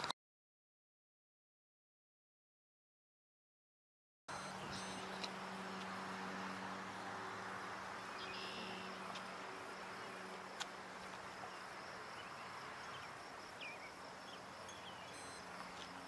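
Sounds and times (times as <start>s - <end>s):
insects chirring: 4.3s - 16.0s.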